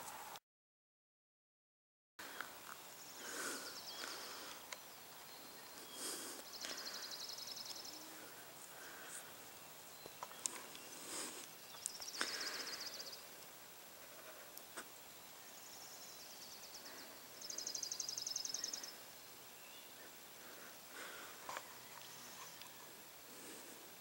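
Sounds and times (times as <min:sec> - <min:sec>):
small birds trilling and chirping: 0:02.2 - 0:24.0
faint clicks: 0:10.0 - 0:13.6.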